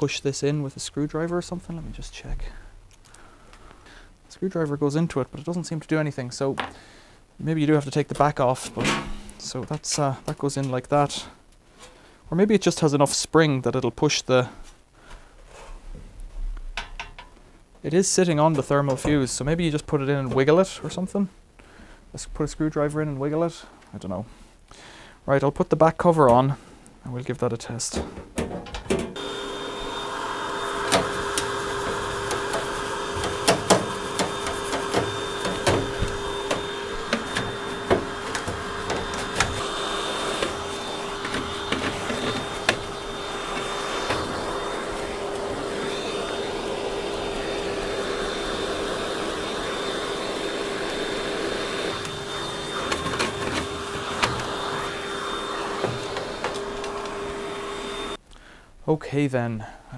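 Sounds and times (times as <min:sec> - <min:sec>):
vacuum cleaner running: 0:28.9 - 0:58.2
nozzle knocking against dryer: 0:32.2 - 0:39.6.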